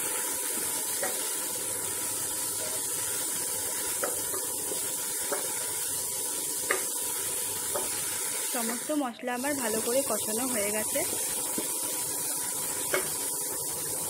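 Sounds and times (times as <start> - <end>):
paste sizzling in hot oil: 0.0 - 14.0
spatula tapping pot: 0.6 - 1.3, 3.7 - 5.6, 6.6 - 7.0, 7.6 - 8.0, 12.8 - 13.2.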